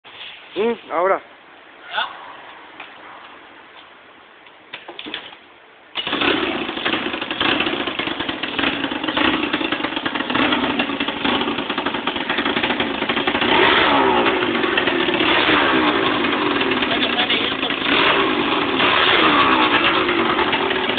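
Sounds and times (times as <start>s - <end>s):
two-stroke scooter engine revving: 6.0s - 20.9s.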